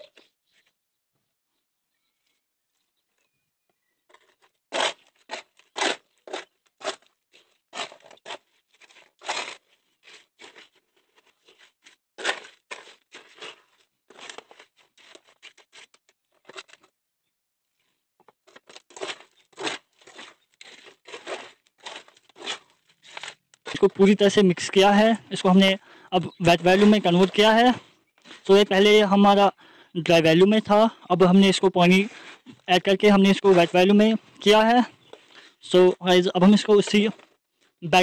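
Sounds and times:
concrete scraping and crunching: 0:02.7 - 0:16.9, 0:17.7 - 0:25.6, 0:26.3 - 0:28.6.

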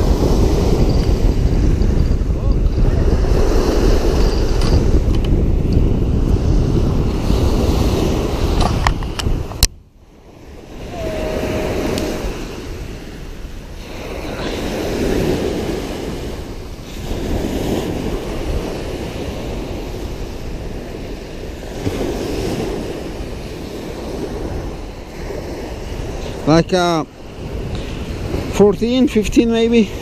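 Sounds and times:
small waves washing on shore: 0:00.0 - 0:30.0
wind on microphone: 0:00.0 - 0:30.0
brief steady tone: 0:10.8 - 0:12.3.

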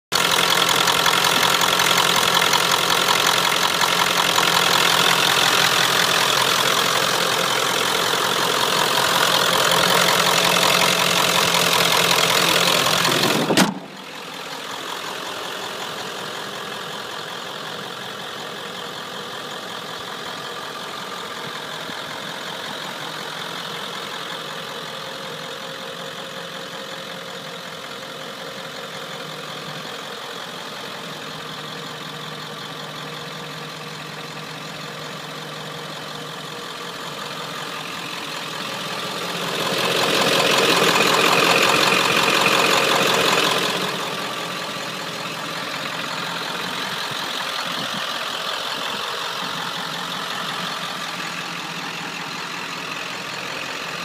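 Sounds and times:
diesel engine idling: 0:00.1 - 0:54.0
single thump: 0:13.4 - 0:14.0.

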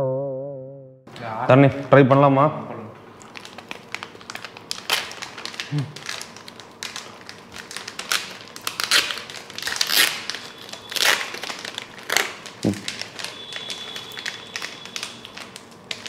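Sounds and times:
foil chip pouches crinkling: 0:03.2 - 0:16.0.

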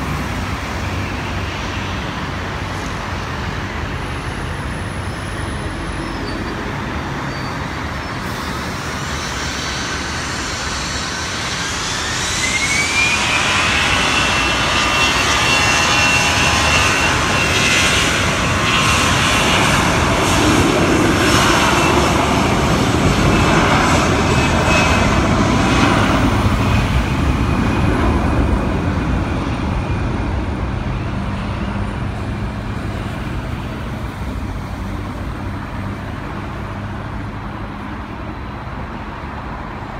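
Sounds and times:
jet engines spooling up: 0:00.0 - 0:38.6.

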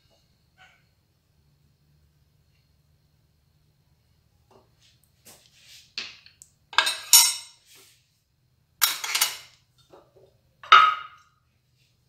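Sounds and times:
metal utensils and dishes clinking: 0:06.8 - 0:07.6, 0:08.8 - 0:09.6.

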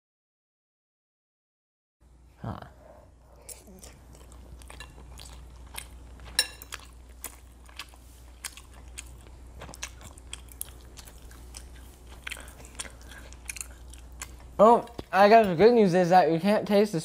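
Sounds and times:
chewing: 0:03.3 - 0:15.5.

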